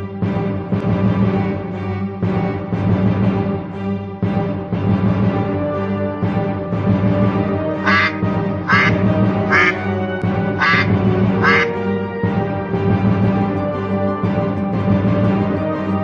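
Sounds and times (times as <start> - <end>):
background music: 0.0 - 16.0
duck quacking: 7.8 - 9.9, 10.6 - 11.8.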